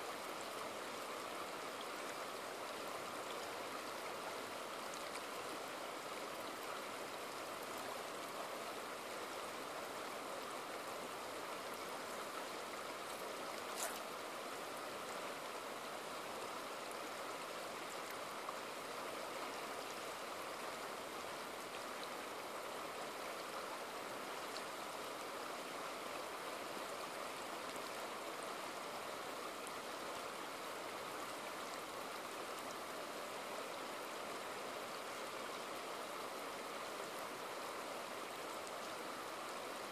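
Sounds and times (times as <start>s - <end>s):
river water rushing over boulders: 0.0s - 39.9s.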